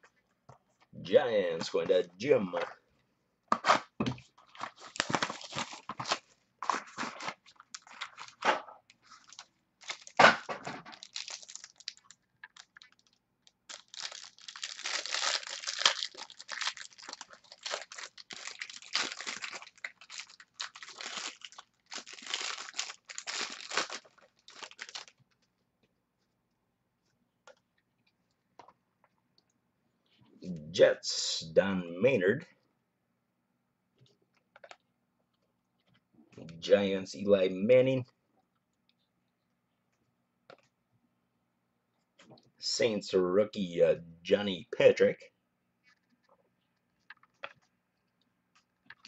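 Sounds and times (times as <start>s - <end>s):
cards rustling: 4.4s - 10.2s, 13.7s - 25.4s
foil wrapper crinkling: 4.5s - 10.2s, 10.8s - 25.4s.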